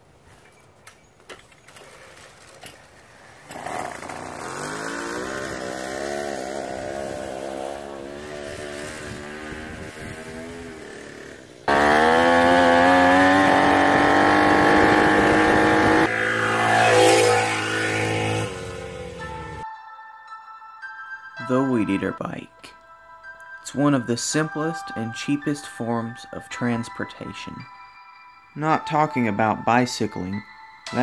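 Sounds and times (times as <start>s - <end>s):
small two-stroke engine buzzing: 3.3s - 19.6s.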